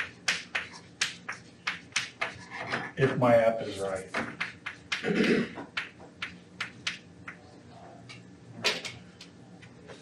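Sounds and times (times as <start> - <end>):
chalk tapping on chalkboard: 0.0 - 2.9, 4.0 - 7.5.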